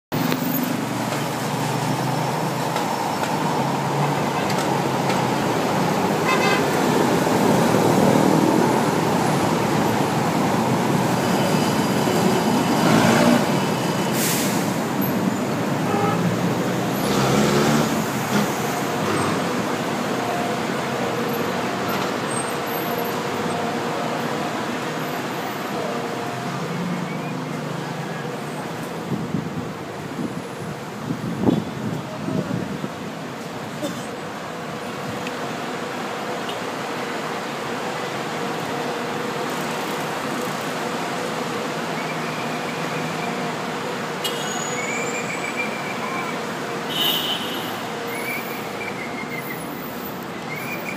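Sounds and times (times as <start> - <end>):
car horn toots: 6.2 - 6.7.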